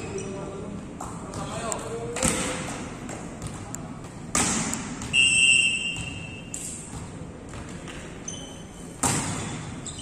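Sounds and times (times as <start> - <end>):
shoes squeaking on court floor: 0.0 - 1.7, 5.0 - 10.0
volleyball being struck: 4.3 - 7.7, 9.0 - 9.6.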